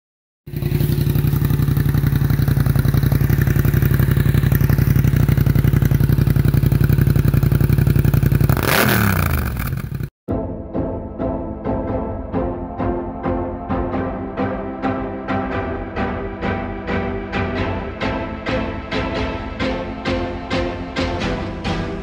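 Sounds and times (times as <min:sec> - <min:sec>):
motorcycle engine revving: 0:00.5 - 0:10.1.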